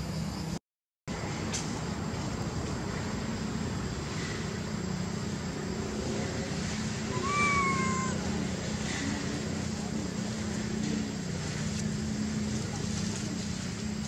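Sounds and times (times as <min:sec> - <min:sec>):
baby monkey crying: 0:07.1 - 0:08.4.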